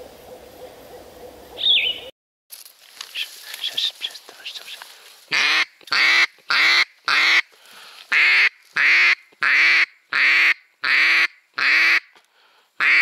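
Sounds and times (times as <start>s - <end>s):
duck quacking: 5.3s - 7.5s, 8.1s - 12.1s, 12.8s - 13.0s.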